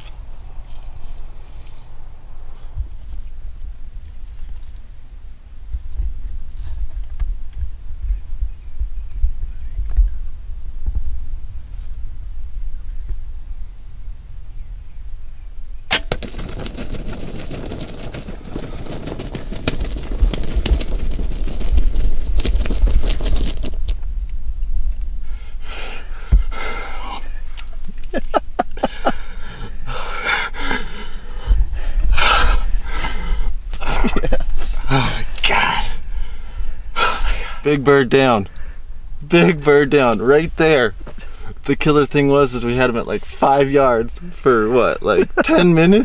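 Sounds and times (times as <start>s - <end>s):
bow firing crack: 15.9s - 16.6s
bird thrashing and wing-flapping: 15.9s - 24.0s
excited breaths and whispers: 25.3s - 27.7s, 34.6s - 37.7s.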